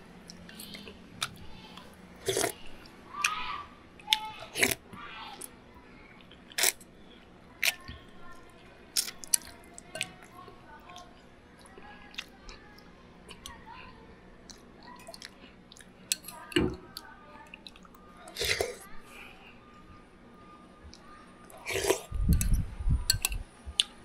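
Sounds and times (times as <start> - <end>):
chewing and mouth sounds: 6.2 - 13.6, 14.4 - 18.9
metal spoon clicks and knocks: 23.1 - 23.4.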